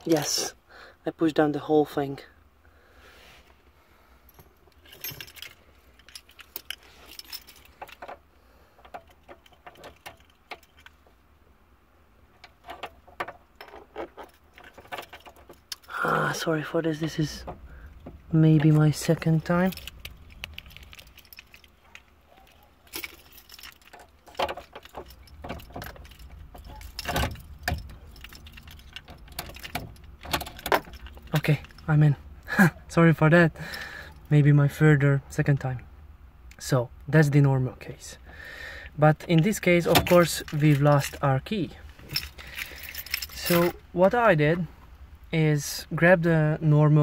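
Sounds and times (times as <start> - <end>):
keys jangling: 4.3 - 8.2, 8.9 - 11.0, 12.5 - 16.0, 17.0 - 31.9, 39.2 - 43.9
metallic clicks and rattles: 4.3 - 11.2, 12.3 - 15.9, 17.0 - 31.9, 39.2 - 43.8.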